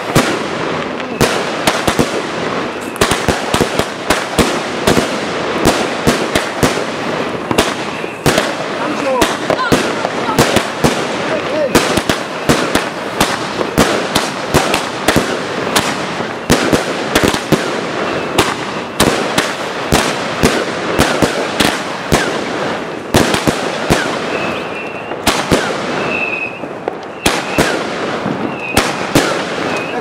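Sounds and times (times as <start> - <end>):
crackling hiss: 0.0 - 30.0
fireworks bangs and cracks: 0.0 - 30.0
short high whistles: 26.0 - 27.7.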